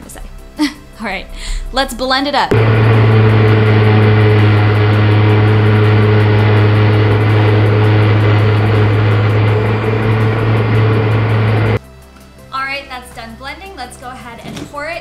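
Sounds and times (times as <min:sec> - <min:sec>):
blender motor whirring: 0:02.5 - 0:11.8.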